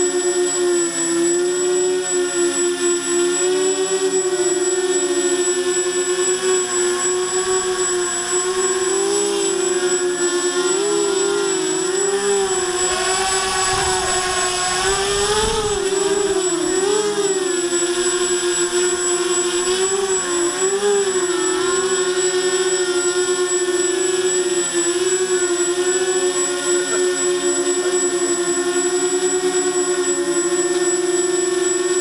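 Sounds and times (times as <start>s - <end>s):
quadcopter motors whining: 0.0s - 32.0s
wind rumble on microphone: 12.5s - 16.4s.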